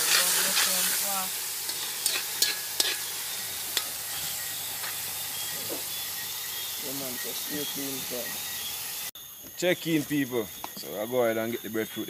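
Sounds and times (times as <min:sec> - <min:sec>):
fish sizzling in a pan: 0:00.0 - 0:09.2.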